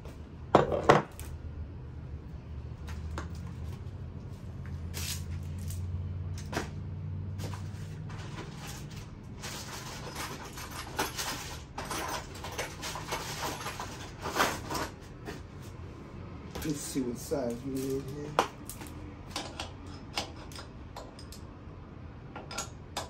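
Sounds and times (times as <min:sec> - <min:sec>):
parts and packaging handled: 0:07.4 - 0:15.5, 0:16.5 - 0:19.7.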